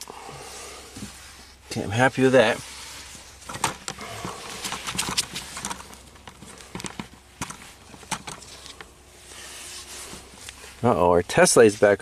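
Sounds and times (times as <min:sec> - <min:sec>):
clicks and taps of handling wires: 0:04.6 - 0:08.9.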